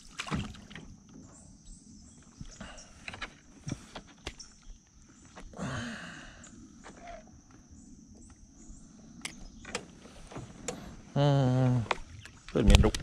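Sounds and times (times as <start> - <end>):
clicks and knocks in a boat: 0.0 - 1.4, 2.1 - 5.5, 9.2 - 13.0.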